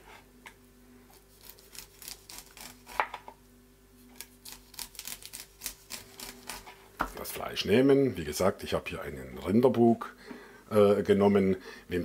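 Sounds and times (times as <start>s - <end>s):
knife cutting corn on cutting board: 4.2s - 6.8s.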